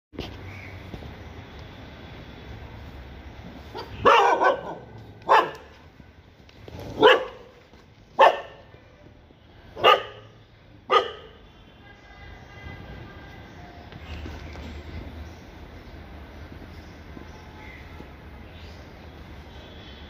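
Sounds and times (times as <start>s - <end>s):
dog barking: 3.8s - 5.7s, 7.0s - 7.5s, 8.2s - 8.7s, 9.8s - 10.3s, 10.9s - 11.4s.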